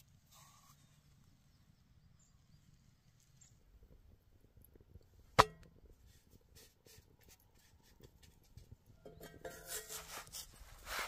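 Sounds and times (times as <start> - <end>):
campfire embers crackling: 2.4 - 8.9.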